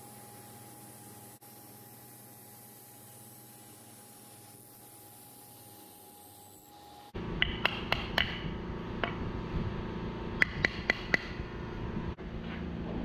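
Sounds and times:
steady machine hum: 0.0 - 13.0
sharp wooden knocks: 7.4 - 8.4.

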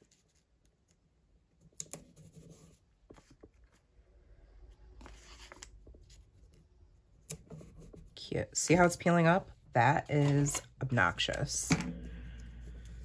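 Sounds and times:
paper rustling and crinkling: 5.0 - 6.4.

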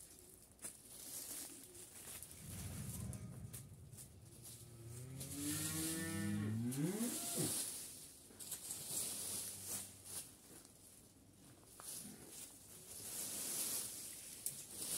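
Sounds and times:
cow mooing: 4.5 - 7.5
rake scratching dry leaves: 4.6 - 10.4, 12.8 - 14.9.

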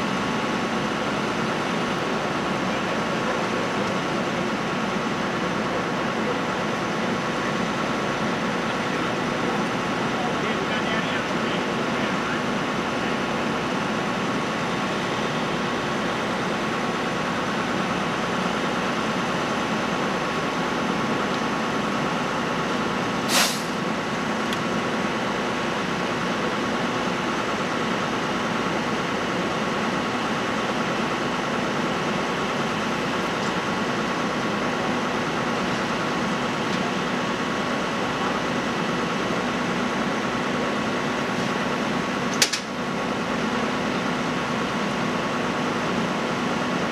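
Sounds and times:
vehicle engines idling: 0.0 - 46.9
short sharp hiss: 23.3 - 23.8.

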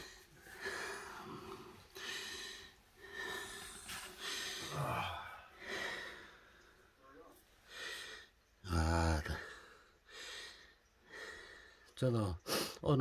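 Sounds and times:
person breathing loudly: 0.0 - 6.9.

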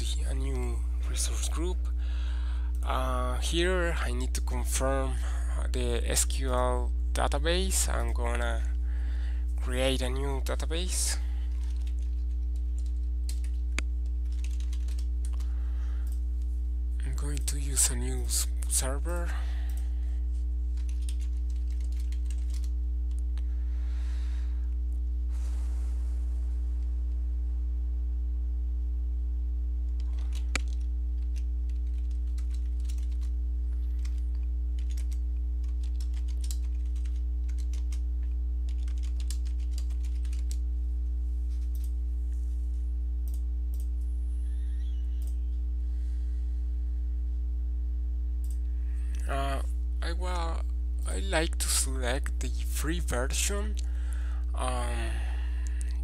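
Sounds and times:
steady low hum: 0.0 - 56.0
keyboard typing: 11.5 - 13.6, 14.2 - 15.4, 20.8 - 22.7, 30.0 - 33.3, 34.8 - 38.0, 38.7 - 40.6.

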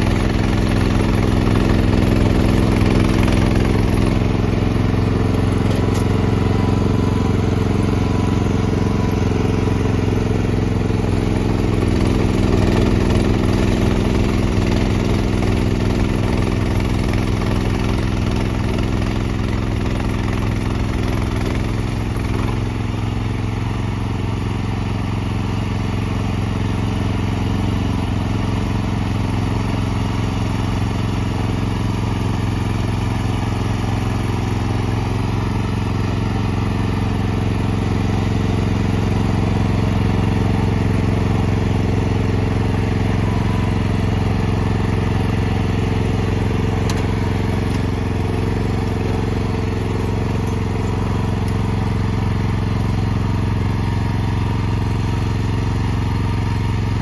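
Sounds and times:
snowblower engine running: 0.0 - 57.0.

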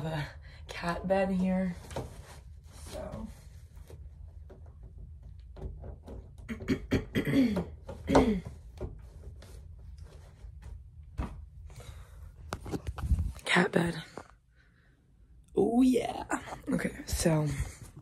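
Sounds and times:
fabric rustling and small knocks: 7.8 - 13.6.

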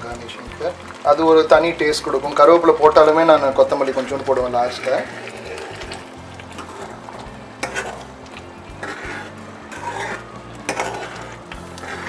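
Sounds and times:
ladle sloshing through gravy: 0.1 - 12.0.

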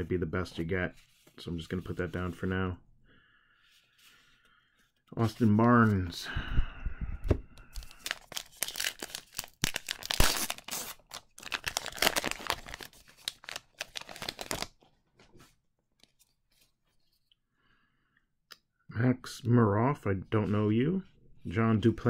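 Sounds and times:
card pack wrapper crinkling and tearing: 7.7 - 14.8.

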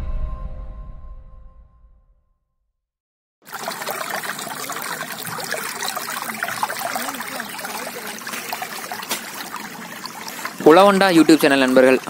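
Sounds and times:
water rushing with gurgles: 3.4 - 12.0.

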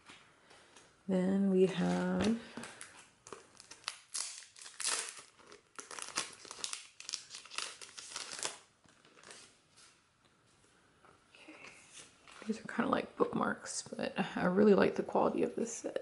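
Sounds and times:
plastic packaging crinkling: 1.7 - 9.6.

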